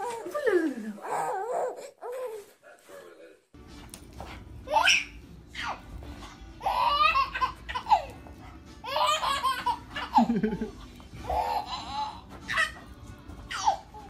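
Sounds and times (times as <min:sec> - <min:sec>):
baby laughing: 0:04.7 - 0:05.9, 0:06.6 - 0:12.8, 0:13.5 - 0:14.0.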